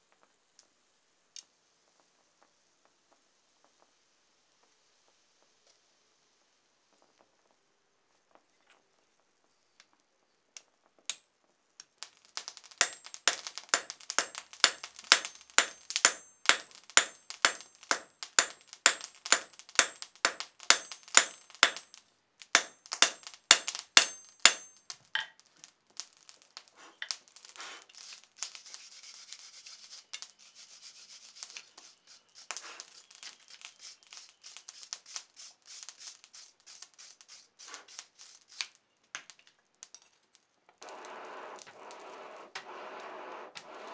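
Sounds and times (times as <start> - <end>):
hammer ringing on anvil: 22.6 - 24.8
wire brush scrubbing steel: 26.8 - 38.7, 40.8 - 43.9.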